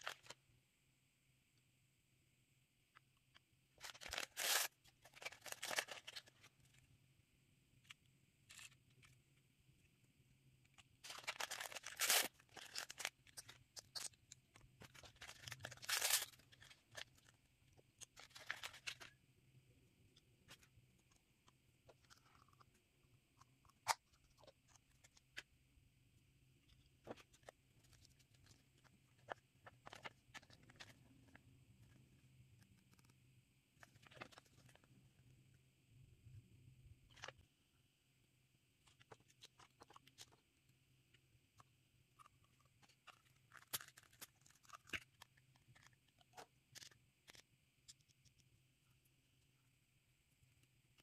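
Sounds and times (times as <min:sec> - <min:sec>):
plastic packets crinkling and tearing: 0:00.0 - 0:00.4, 0:03.8 - 0:06.8, 0:11.0 - 0:17.4, 0:18.0 - 0:19.2, 0:42.8 - 0:47.4
paper leaflet rustling: 0:03.8 - 0:06.7.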